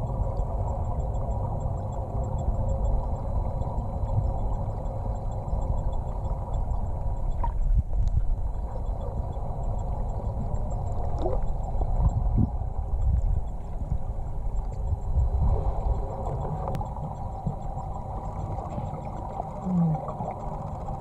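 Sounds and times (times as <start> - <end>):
faint bubbling gurgles: 0.0 - 21.0
muffled underwater rumble: 0.0 - 21.0.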